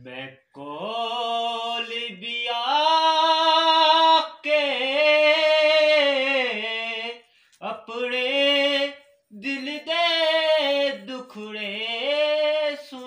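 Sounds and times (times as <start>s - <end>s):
person singing unaccompanied: 0.0s - 13.0s
singer breathing: 7.2s - 7.6s.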